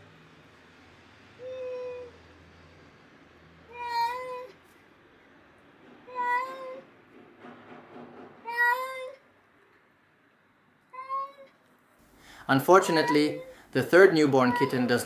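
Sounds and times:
cat meowing: 1.4s - 2.2s, 3.7s - 4.6s, 6.1s - 6.9s, 8.4s - 9.2s, 10.9s - 11.5s, 12.8s - 13.5s, 14.3s - 15.0s.

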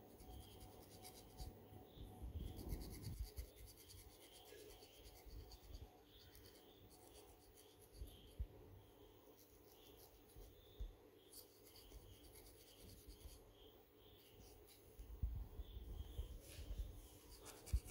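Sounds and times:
metal pick scratching scalp: 17.3s - 17.9s.

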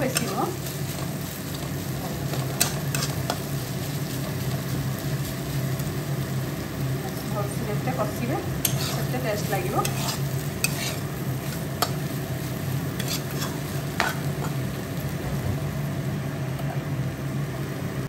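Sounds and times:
food sizzling in oil: 0.0s - 18.0s
spatula scraping against pan: 8.6s - 12.0s, 12.9s - 14.6s.

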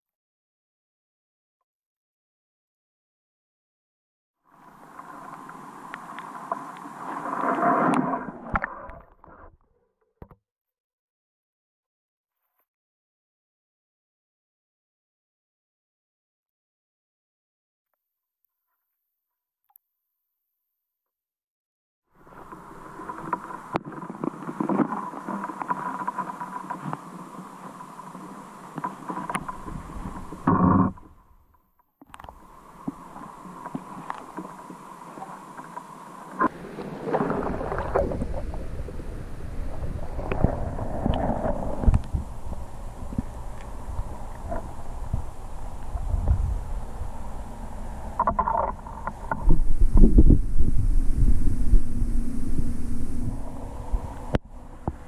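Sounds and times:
water sloshing and rushing: 4.5s - 9.6s, 22.2s - 31.3s, 32.1s - 55.0s
small ticks and clicks: 4.7s - 9.0s, 22.3s - 31.1s, 32.0s - 38.6s, 39.7s - 50.3s.

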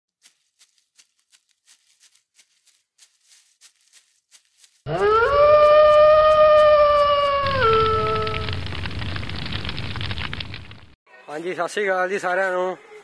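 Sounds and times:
wolf howl: 4.9s - 8.6s.

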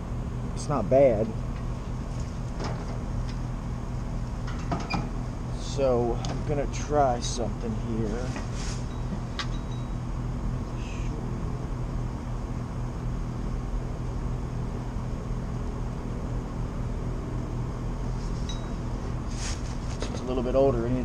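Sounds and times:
condenser fan humming: 0.0s - 21.0s.

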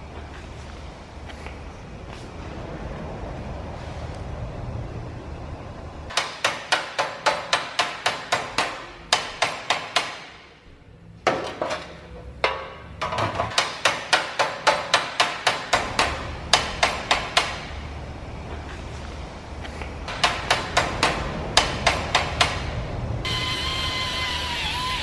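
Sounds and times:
hammer beating sheet metal: 6.1s - 10.6s, 12.4s - 17.8s, 20.1s - 22.8s.

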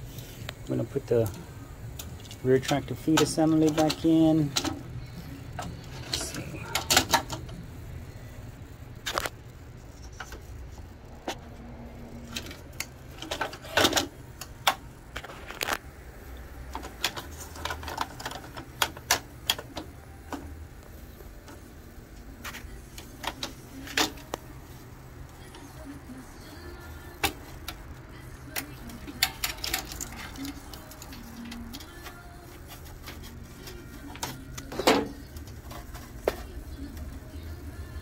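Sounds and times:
plastic and metal parts clicking: 2.0s - 4.8s, 28.5s - 36.5s.

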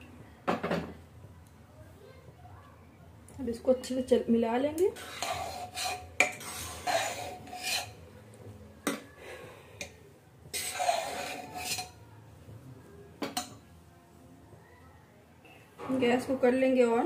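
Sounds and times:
metal spoon scraping pot: 4.9s - 8.0s, 10.5s - 12.0s.

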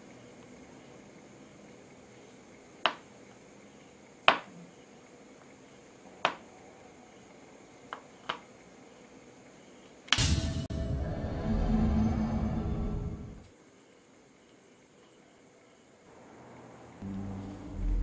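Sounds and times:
music: 10.2s - 13.4s, 17.0s - 18.0s.

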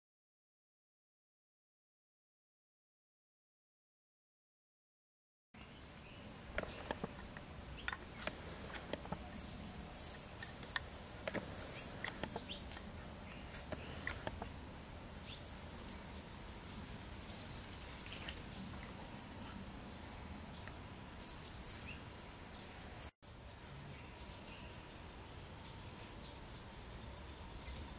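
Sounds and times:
bird chirps: 5.6s - 14.5s, 15.1s - 18.4s, 21.2s - 23.1s
light clicks and rustles: 17.6s - 19.0s.

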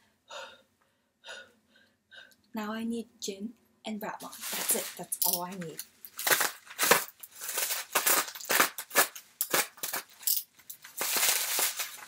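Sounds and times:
packaging crinkling and crackling: 4.2s - 12.0s.

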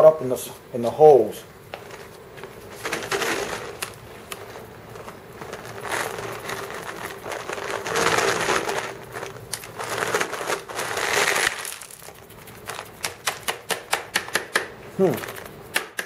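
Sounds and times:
shop vacuum sucking stones: 2.0s - 13.6s
stones clicking in hose: 2.8s - 16.0s.

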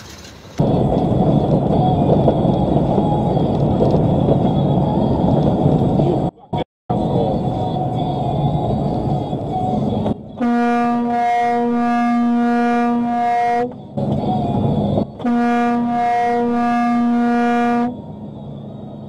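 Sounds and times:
truck engine and road noise: 0.0s - 19.0s
truck air horn blasts: 10.4s - 13.8s, 15.2s - 18.0s.

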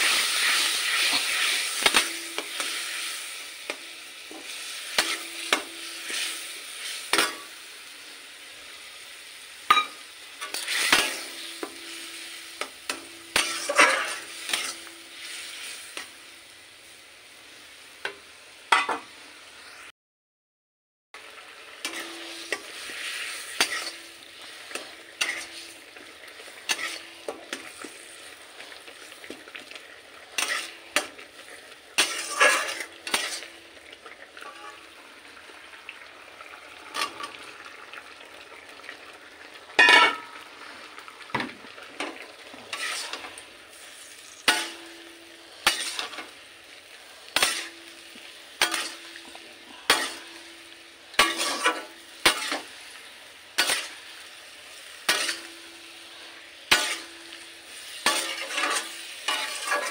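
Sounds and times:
metal spatula scraping pan: 0.0s - 3.2s, 9.7s - 12.3s, 13.1s - 15.8s, 21.8s - 29.1s, 30.3s - 33.6s, 34.4s - 34.9s, 39.8s - 40.4s, 42.7s - 45.0s, 45.6s - 46.3s, 47.3s - 48.0s, 48.6s - 49.2s, 49.8s - 50.6s, 51.2s - 52.8s, 53.6s - 54.0s, 55.0s - 55.6s, 56.7s - 59.9s
food sizzling in oil: 0.0s - 19.9s, 21.2s - 59.9s.

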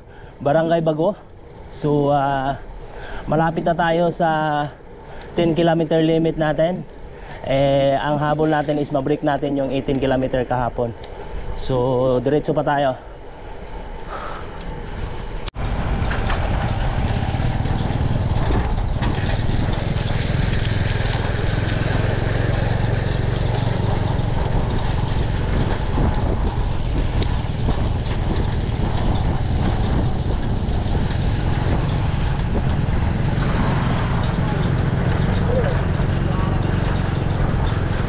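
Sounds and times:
wind rushing over microphone: 13.0s - 38.0s.

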